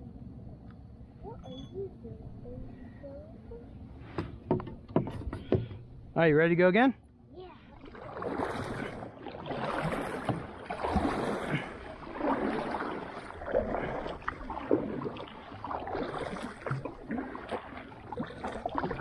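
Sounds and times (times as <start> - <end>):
kayak paddle splashing water: 7.6 - 19.0.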